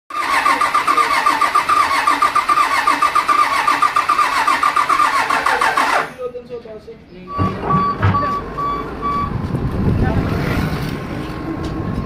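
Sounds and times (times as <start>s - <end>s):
diesel engine cranking: 0.1s - 6.4s.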